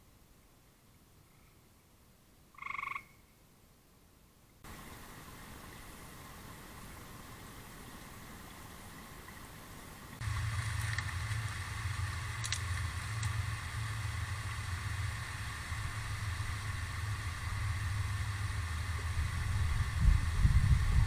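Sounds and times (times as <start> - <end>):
steady low hum: 10.2 - 21.0
wind buffeting microphone: 10.2 - 21.0
faint clicks: 12.3 - 13.4.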